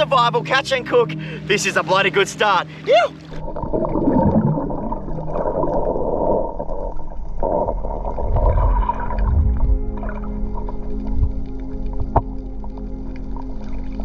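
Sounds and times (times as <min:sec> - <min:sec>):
underwater rumbling and gurgling: 0:03.2 - 0:14.0.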